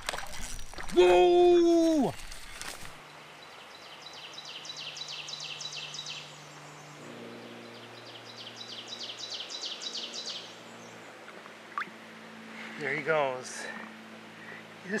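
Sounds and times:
songbird trilling: 0:07.7 - 0:10.6.

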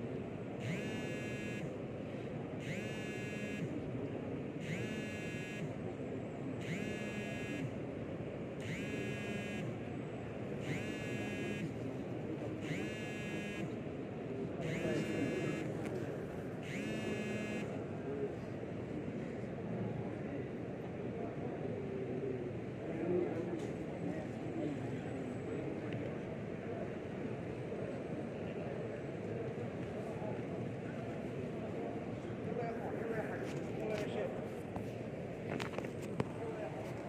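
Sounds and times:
murmur of indoor crowd: 0:00.0 - 0:37.0
short buzzy electronic beeps: 0:00.6 - 0:01.7, 0:02.6 - 0:03.7, 0:04.6 - 0:05.7, 0:06.6 - 0:07.7, 0:08.6 - 0:09.7, 0:10.6 - 0:11.7, 0:12.6 - 0:13.7, 0:14.6 - 0:15.7, 0:16.6 - 0:17.7.

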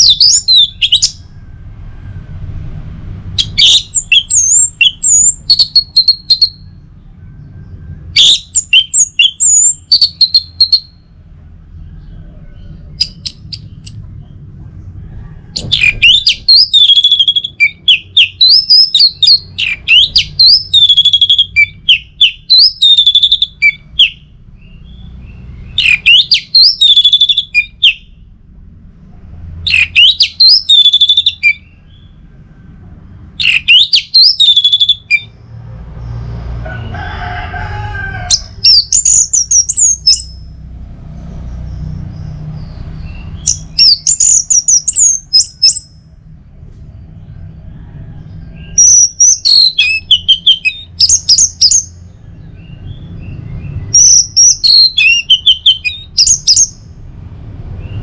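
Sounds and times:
thrush singing whistled phrases: 0:00.0 - 0:01.3, 0:03.4 - 0:06.8, 0:08.0 - 0:11.1, 0:12.9 - 0:14.0, 0:15.6 - 0:28.2, 0:29.7 - 0:32.1, 0:33.4 - 0:35.3, 0:38.4 - 0:40.5, 0:43.0 - 0:46.0, 0:48.7 - 0:52.1, 0:52.8 - 0:56.8.

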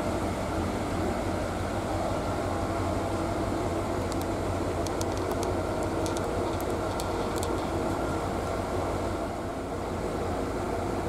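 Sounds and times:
diesel locomotive engine idling: 0:00.0 - 0:11.0
faint sharp clicks: 0:04.0 - 0:07.7.

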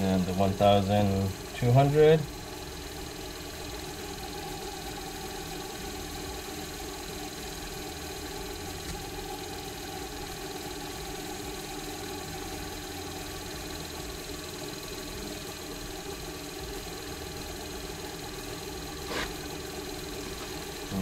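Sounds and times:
lathe motor running: 0:00.0 - 0:21.0
sandpaper polishing: 0:19.0 - 0:19.5.

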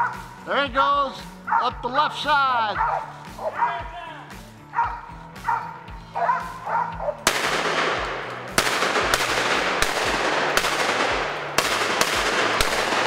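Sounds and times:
dogs barking: 0:00.0 - 0:00.4, 0:01.4 - 0:01.9, 0:02.7 - 0:07.3.

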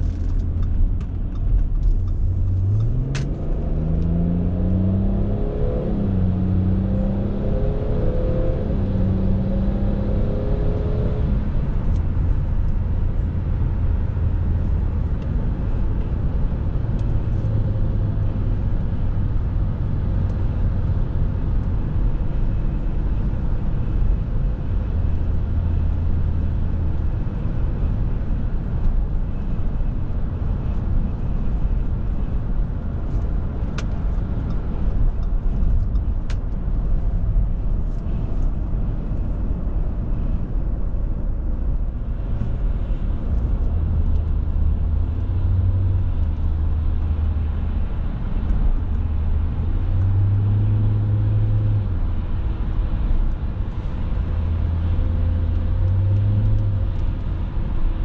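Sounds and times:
car engine drone: 0:00.0 - 0:58.0
tyre and road noise: 0:00.0 - 0:58.0.

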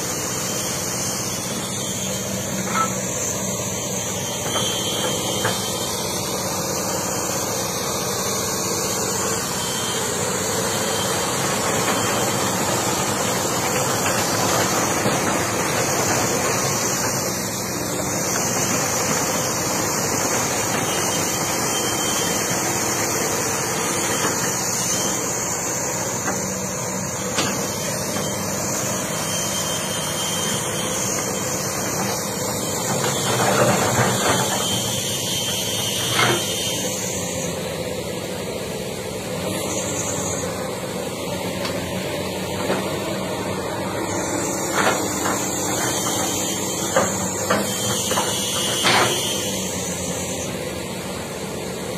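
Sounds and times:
excavator diesel engine running: 0:00.0 - 0:51.9.

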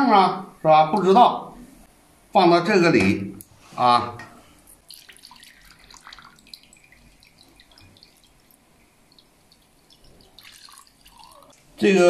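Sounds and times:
faint oil crackles: 0:04.5 - 0:11.8
oil trickling through a strainer: 0:04.6 - 0:11.7.

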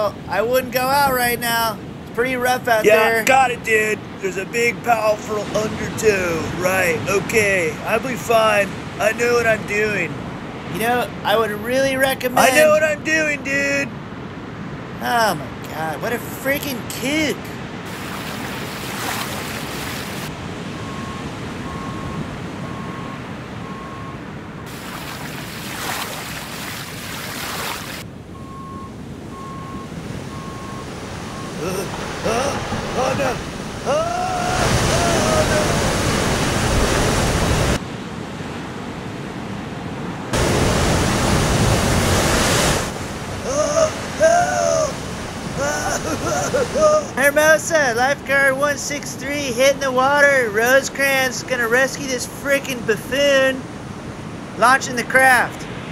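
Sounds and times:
ocean surf washing: 0:00.0 - 0:55.9
waves breaking: 0:00.0 - 0:55.9
vehicle reversing beeper: 0:20.7 - 0:24.3, 0:28.3 - 0:32.6.

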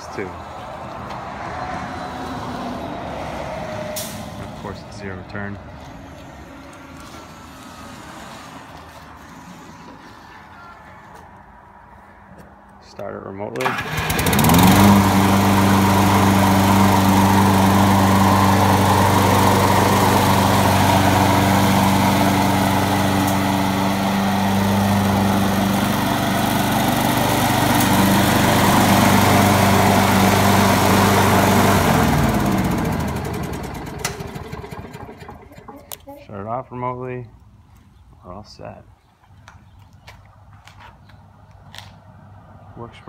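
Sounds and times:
lawn mower engine running: 0:13.6 - 0:36.1.

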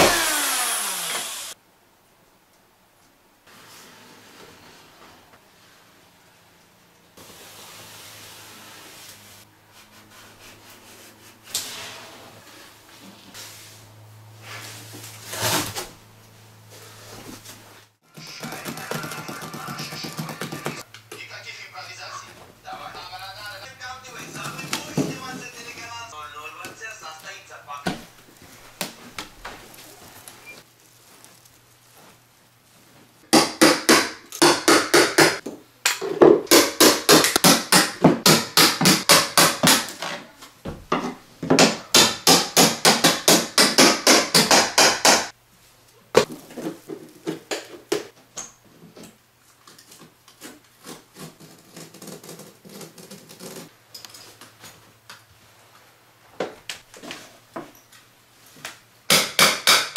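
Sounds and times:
hammer striking metal pry bar: 0:59.1 - 0:59.9.

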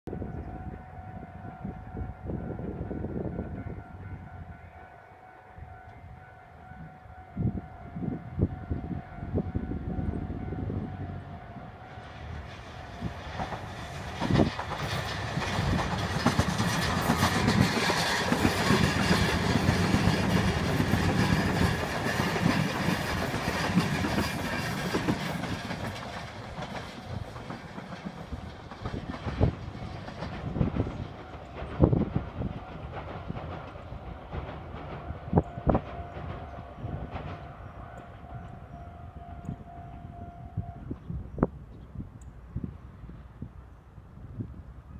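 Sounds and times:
train wheels rumbling on rails: 0:07.4 - 0:41.6.

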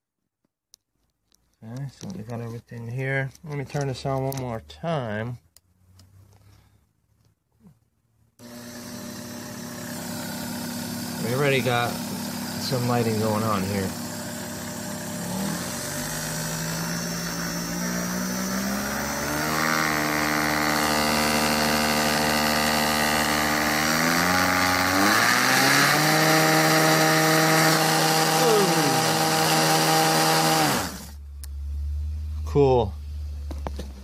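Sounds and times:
small electric motor whining: 0:08.4 - 0:31.2.

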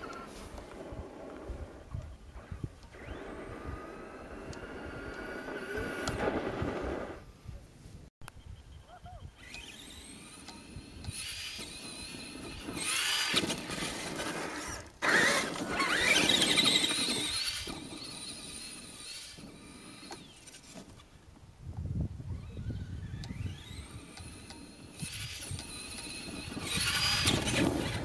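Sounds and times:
electric motor whining: 0:00.0 - 0:07.2, 0:09.4 - 0:21.0, 0:22.2 - 0:28.0.

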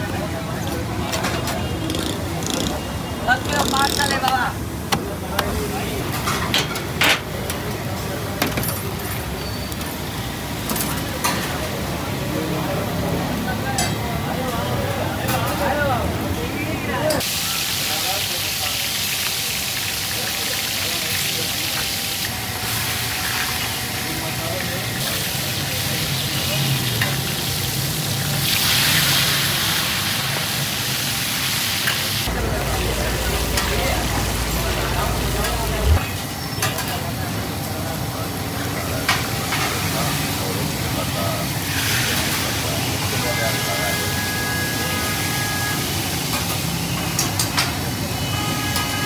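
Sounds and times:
street background noise: 0:00.0 - 0:49.0
oil sizzling on griddle: 0:17.2 - 0:35.4, 0:38.6 - 0:48.5.

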